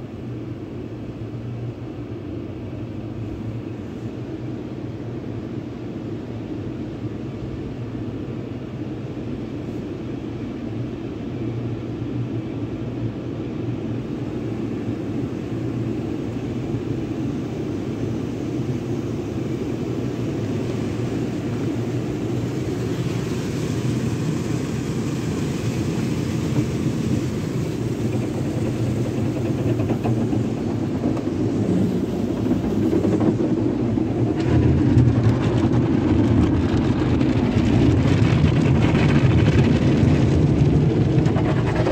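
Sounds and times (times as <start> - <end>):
car wash water spray rumble: 0.0 - 41.9.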